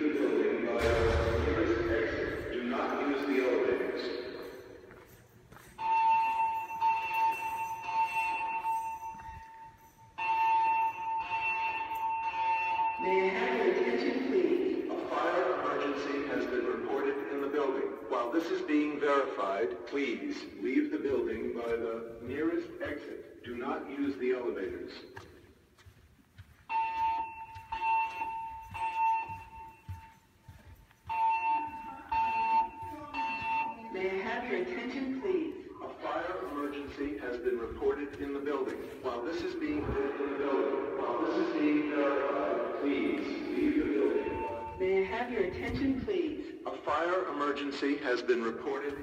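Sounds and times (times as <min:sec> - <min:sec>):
recorded voice message: 0:00.0 - 0:04.6, 0:13.0 - 0:25.2, 0:31.5 - 0:49.0
fire alarm beeps: 0:00.8 - 0:03.4, 0:04.0 - 0:15.0, 0:26.6 - 0:35.7, 0:43.6 - 0:46.6
electronic alarm tone: 0:31.1 - 0:34.0, 0:44.0 - 0:44.9.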